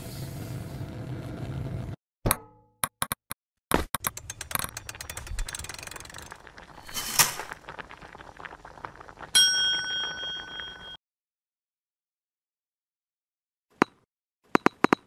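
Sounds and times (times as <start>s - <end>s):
small mechanical clicks and rattles: 4.0s - 6.4s
bright bell ding: 9.4s - 11.0s.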